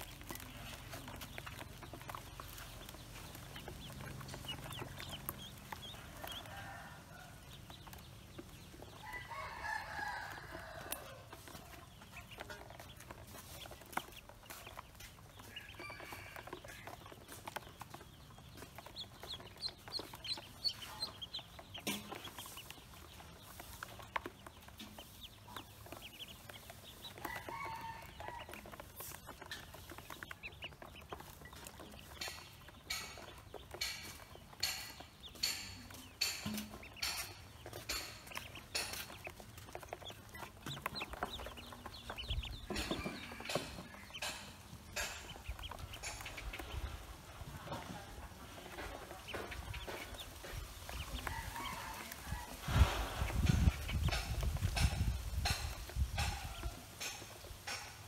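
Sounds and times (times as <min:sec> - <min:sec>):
bills pecking in plastic basin: 0:00.0 - 0:09.0, 0:10.6 - 0:52.6
ducklings peeping: 0:00.0 - 0:58.0.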